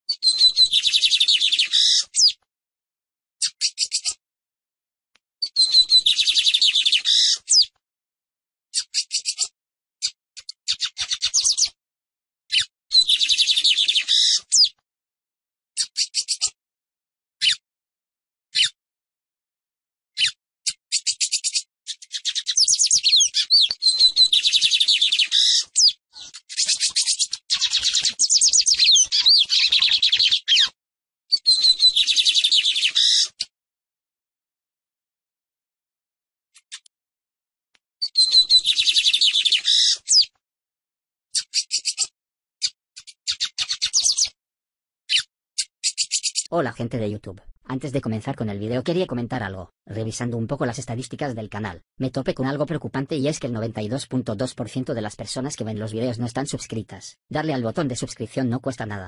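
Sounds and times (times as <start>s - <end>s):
bird singing rapid high notes: 5.4s - 7.6s, 20.2s - 33.4s, 38.0s - 40.3s, 41.4s - 44.4s, 45.1s - 46.8s.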